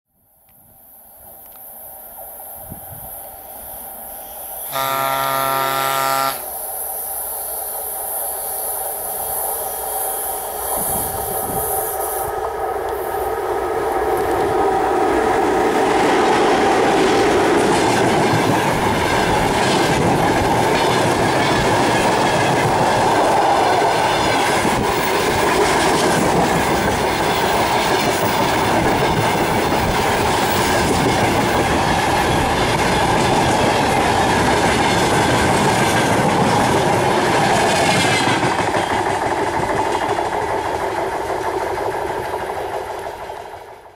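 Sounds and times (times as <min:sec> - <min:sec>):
freight train rumbling past: 0:01.2 - 0:43.9
wheels clacking over rail joints: 0:12.4 - 0:43.9.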